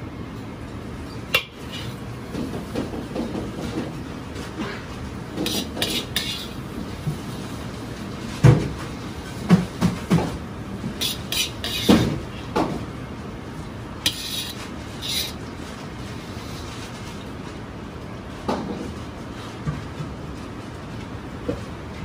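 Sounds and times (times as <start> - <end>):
ladle scraping: 5.4 - 6.6, 11.0 - 12.1, 14.1 - 15.4.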